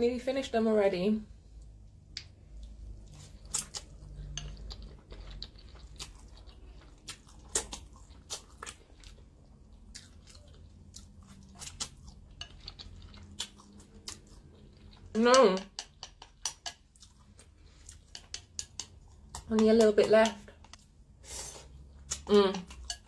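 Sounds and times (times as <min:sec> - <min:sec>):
chewing and mouth sounds: 0:01.6 - 0:21.0, 0:21.6 - 0:23.0
chopsticks clicking on ceramic bowl: 0:15.2 - 0:16.8, 0:18.1 - 0:20.8, 0:22.1 - 0:23.0.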